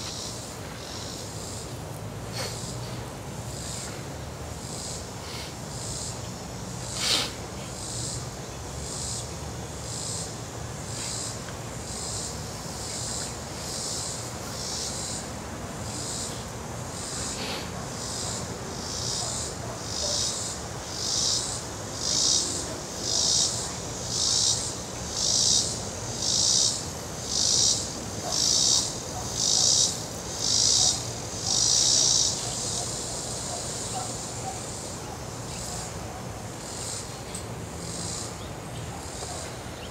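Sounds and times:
cicada buzzing: 0.0s - 39.9s.

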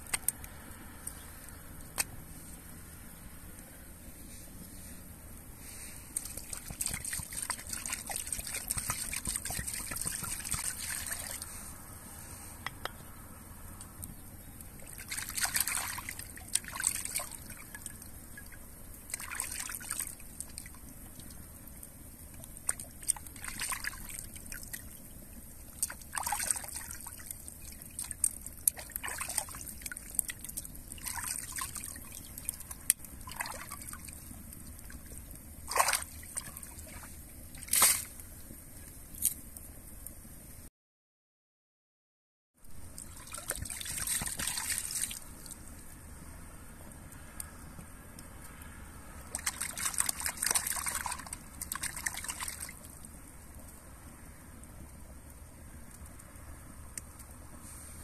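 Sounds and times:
water sloshing and splashing: 5.6s - 11.7s, 14.8s - 39.4s, 42.8s - 45.9s, 48.5s - 53.6s.

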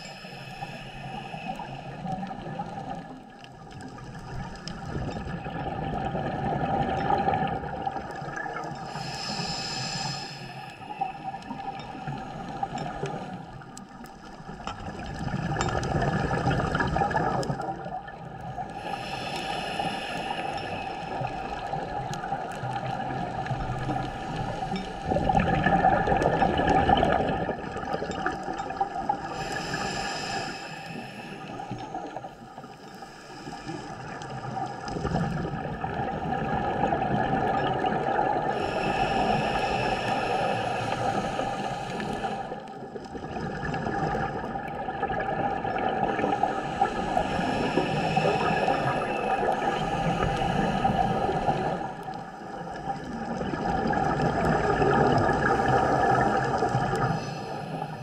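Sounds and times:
hissing regulator breaths: 0.0s - 3.0s, 8.8s - 14.3s, 18.6s - 25.4s, 29.3s - 34.2s, 38.5s - 42.8s, 46.1s - 52.5s
bubbling underwater exhalations: 4.3s - 8.8s, 14.8s - 18.2s, 21.2s - 29.4s, 34.9s - 39.2s, 52.7s - 57.2s.

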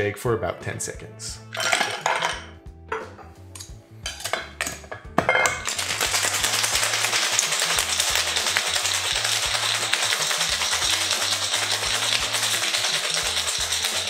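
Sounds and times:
ice cubes clinking into glass: 1.5s - 2.4s, 4.2s - 14.0s
ice rattling in shaker: 1.6s - 2.4s, 5.6s - 14.0s.

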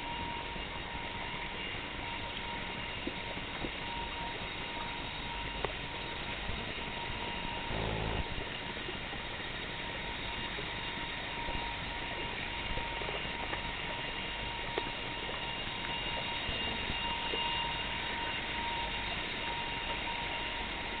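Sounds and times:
background hiss and hum: 0.0s - 21.0s
faint high whines: 0.0s - 21.0s.

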